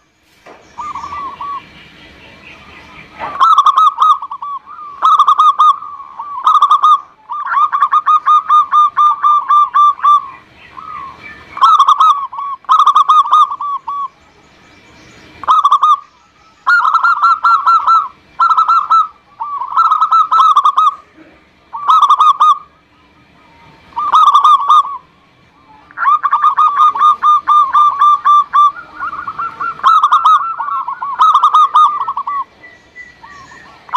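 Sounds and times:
dove cooing: 0.8 - 1.7, 2.6 - 14.2, 15.4 - 33.9.

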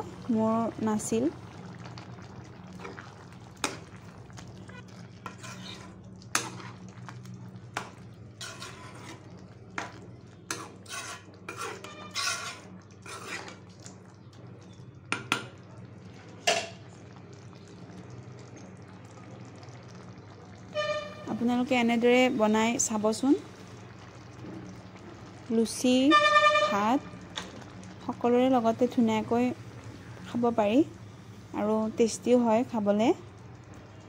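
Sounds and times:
wooden spoon stirring thick curry: 1.8 - 13.9
spoon knocking and scraping pan: 7.8 - 9.2, 9.8 - 13.6.

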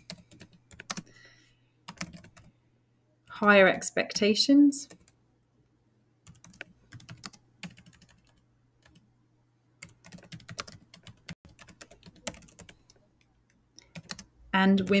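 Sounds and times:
computer keyboard typing: 0.0 - 1.1, 1.9 - 2.5, 4.9 - 5.2, 6.2 - 9.0, 9.8 - 15.0.

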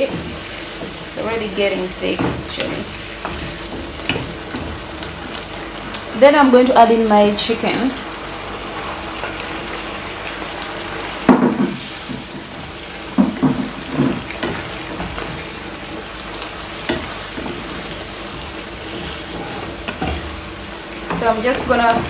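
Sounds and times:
food sizzling in a frying pan: 0.0 - 22.0
utensils knocking and scraping pan: 16.8 - 20.3, 21.0 - 22.0.

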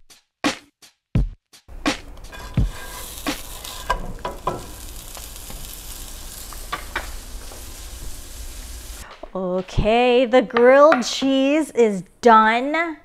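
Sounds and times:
butter sizzling in a frying pan: 2.0 - 9.0
wooden spatula scraping a pan: 2.1 - 7.9.

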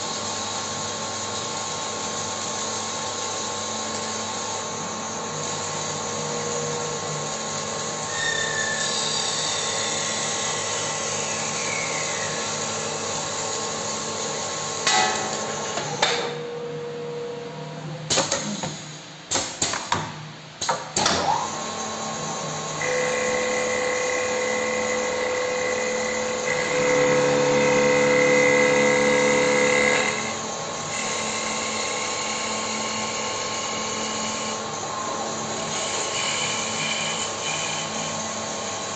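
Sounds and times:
wood lathe motor hum and whine: 3.7 - 14.7, 21.5 - 38.9.

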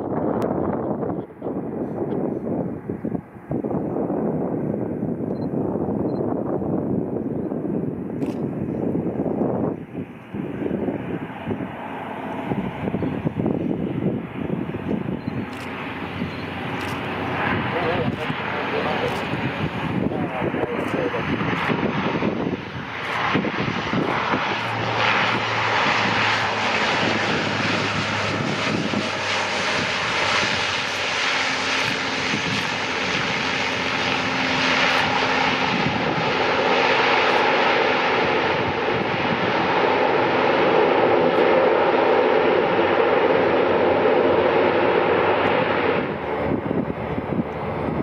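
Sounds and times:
turboprop aircraft propeller drone: 0.0 - 48.0.

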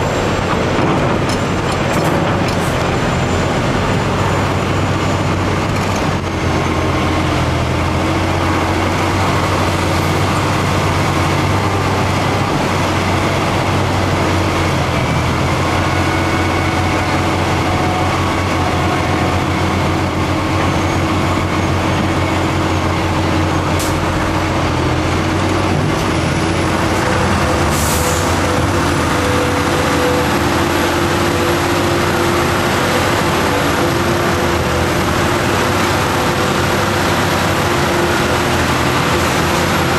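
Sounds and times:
heavy diesel engines running: 0.0 - 39.9.

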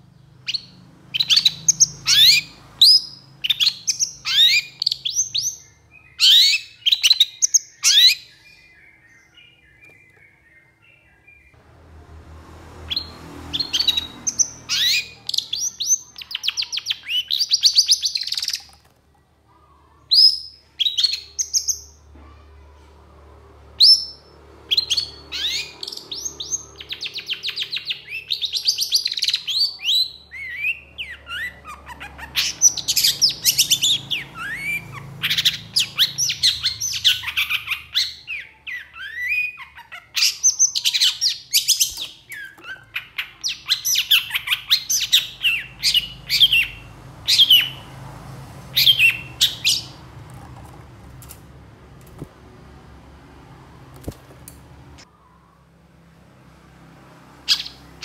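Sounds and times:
bird singing rattling trills: 0.0 - 11.5, 23.8 - 48.0, 48.7 - 50.2.

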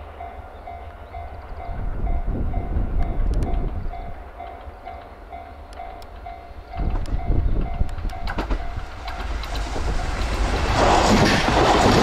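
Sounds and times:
train rumble and wheel clicks: 0.0 - 12.0.

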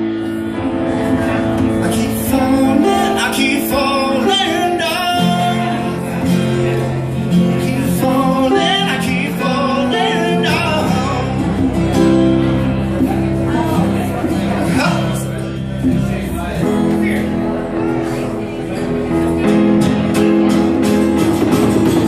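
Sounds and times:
guitar chords: 0.0 - 22.0
man singing: 1.6 - 12.1, 13.5 - 18.2.

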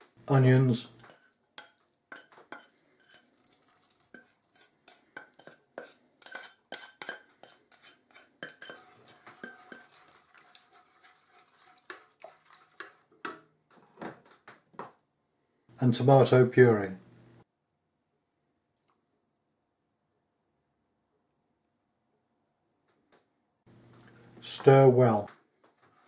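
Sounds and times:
spatula scraping metal saucepan: 1.0 - 3.4, 4.0 - 13.3.

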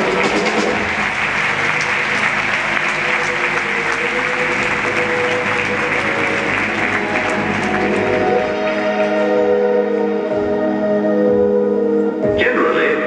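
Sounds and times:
audience applauding: 0.0 - 10.3
music playing: 0.0 - 13.0.

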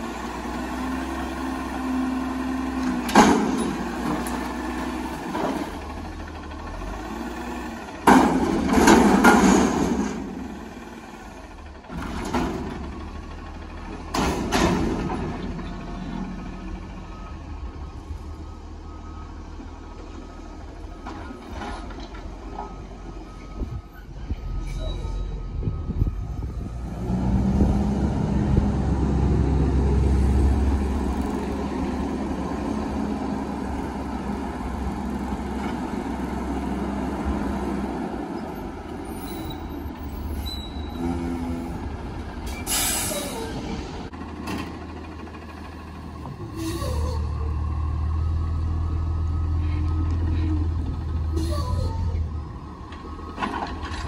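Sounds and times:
air brake hisses: 42.5 - 43.5.

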